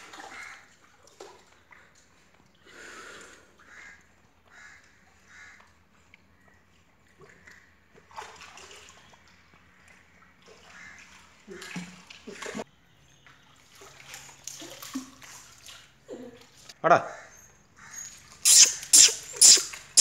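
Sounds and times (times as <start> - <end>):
water splashing and sloshing: 0.0 - 16.8, 17.5 - 20.0.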